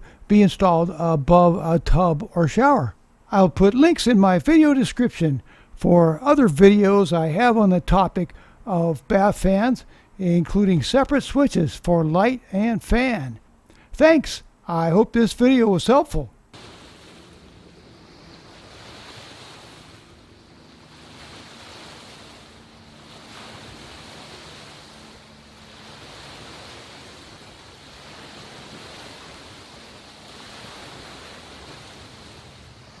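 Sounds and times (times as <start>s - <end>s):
wind: 0.0s - 33.0s
small waves washing: 16.5s - 33.0s.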